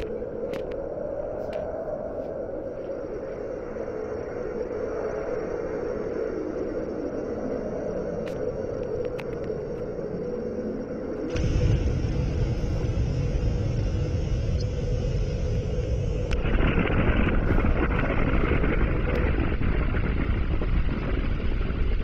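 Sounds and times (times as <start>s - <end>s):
deep explosion rumble: 11.3s - 22.0s.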